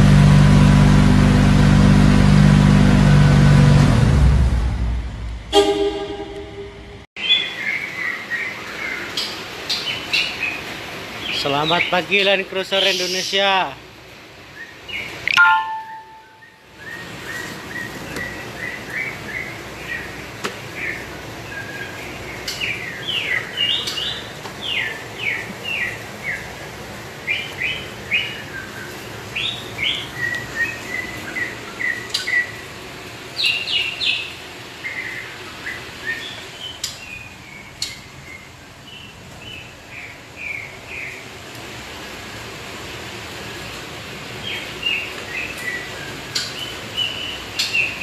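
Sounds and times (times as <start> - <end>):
steady background noise: 4.5 - 48.0
songbird chirping: 14.6 - 20.1.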